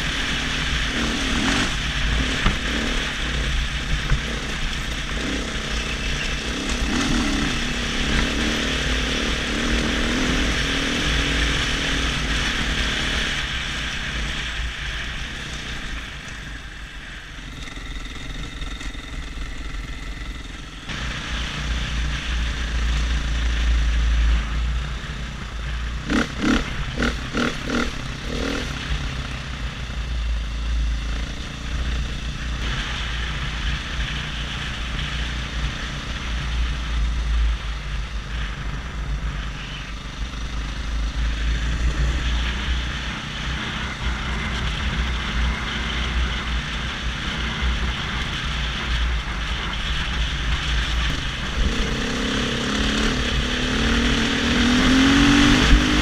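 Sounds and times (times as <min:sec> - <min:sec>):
dirt bike engine running: 0:00.0 - 0:56.0
wind rumble on microphone: 0:20.9 - 0:56.0.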